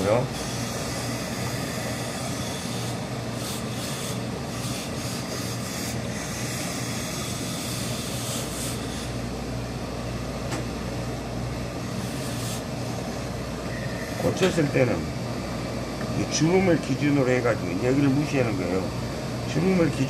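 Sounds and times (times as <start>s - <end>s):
machine hum: 0.0s - 20.0s
steam iron hissing: 12.0s - 13.1s.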